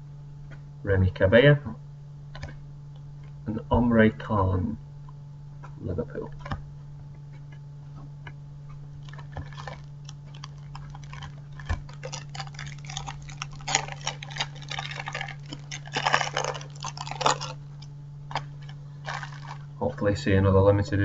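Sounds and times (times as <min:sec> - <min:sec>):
low hum: 0:00.0 - 0:21.0
packet tearing open: 0:09.0 - 0:19.6
plastic wrapper crinkling: 0:09.0 - 0:19.8.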